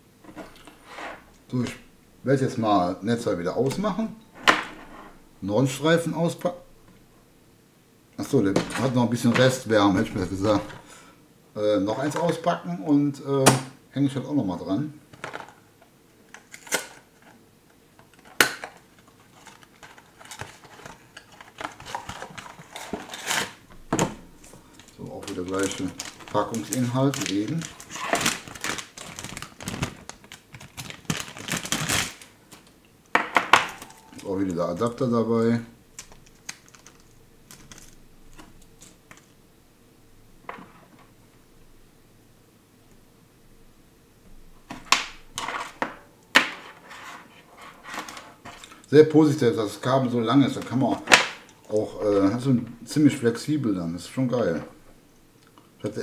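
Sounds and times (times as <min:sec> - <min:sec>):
cardboard box and foil bag rustling: 0:18.8 - 0:23.6, 0:24.5 - 0:32.3
packaging clicks: 0:24.8 - 0:32.8, 0:36.0 - 0:39.3.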